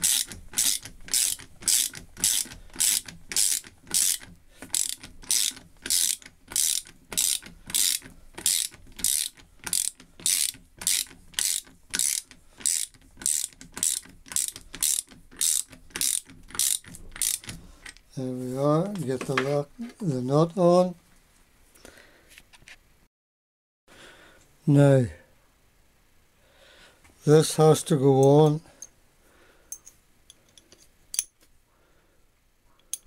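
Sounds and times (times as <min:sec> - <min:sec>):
ratchet spanner clicking: 0:00.0 - 0:18.0.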